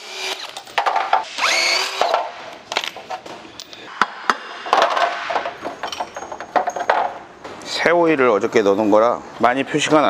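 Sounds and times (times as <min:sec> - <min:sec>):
impact driver spinning: 0:00.0 - 0:02.3.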